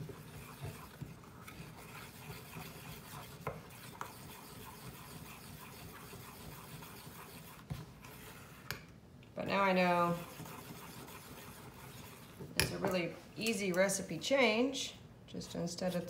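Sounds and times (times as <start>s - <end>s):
spoon scraping paste in bowl: 0.0s - 8.8s, 10.0s - 12.9s.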